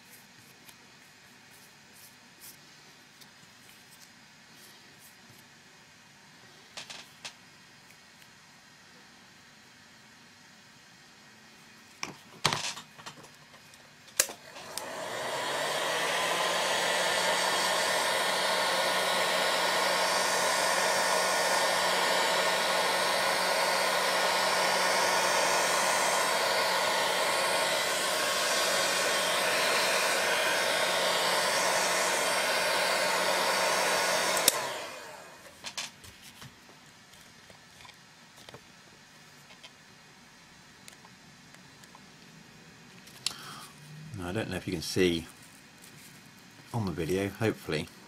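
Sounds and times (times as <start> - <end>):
heat gun blowing whir: 14.2 - 35.7.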